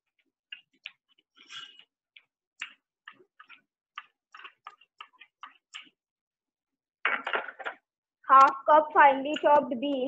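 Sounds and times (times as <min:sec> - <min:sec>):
utensil stirring in a pan: 0:00.0 - 0:06.1.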